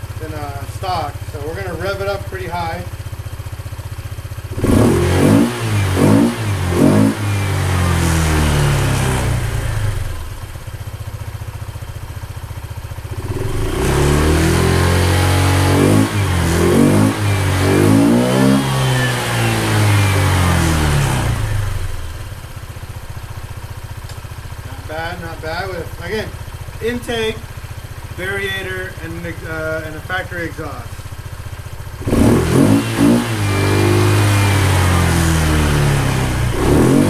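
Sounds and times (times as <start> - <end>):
scooter engine revving: 0.0 - 37.0.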